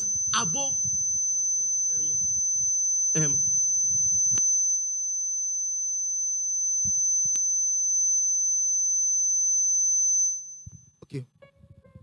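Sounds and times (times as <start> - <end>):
high-pitched electronic whine: 0.0 - 12.0.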